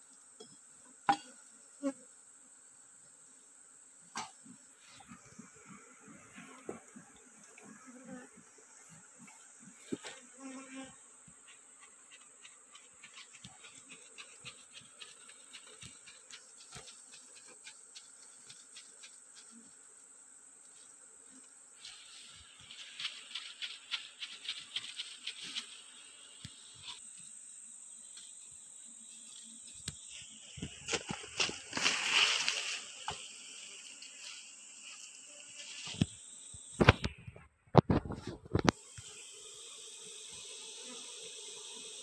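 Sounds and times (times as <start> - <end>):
rustling and crackling: 11.3 - 19.8, 20.6 - 26.0, 30.0 - 36.2.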